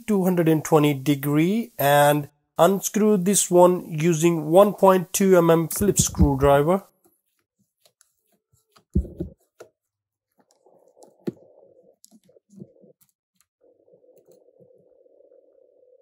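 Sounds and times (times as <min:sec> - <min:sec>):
dull knock: 0:09.0 - 0:09.4.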